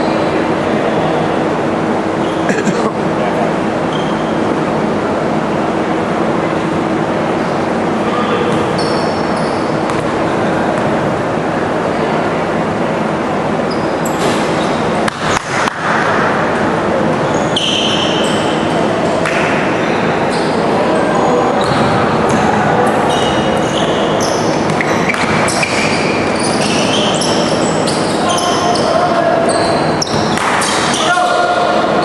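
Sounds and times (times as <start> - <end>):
shoes squeaking on hardwood floor: 8.4 - 10.0, 23.0 - 31.2.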